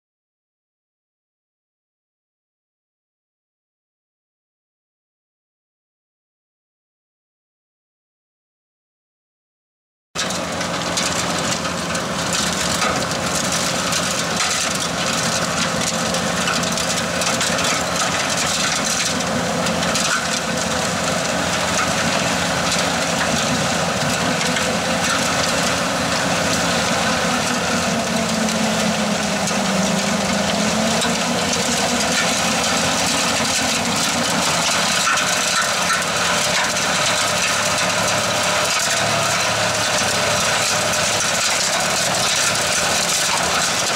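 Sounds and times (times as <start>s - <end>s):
heavy engine drone: 10.2s - 43.9s
snowblower throwing snow: 10.2s - 43.9s.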